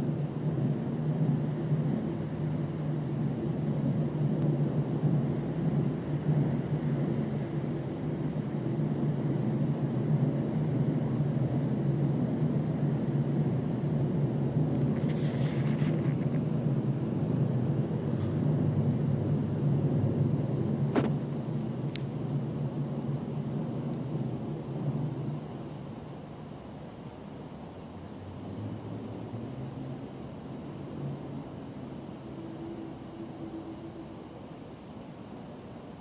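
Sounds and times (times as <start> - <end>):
scratchy rustle: 14.8 - 16.4.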